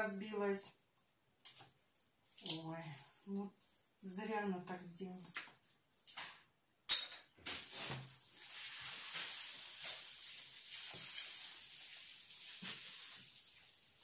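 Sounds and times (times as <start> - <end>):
steady hiss: 7.5 - 14.0.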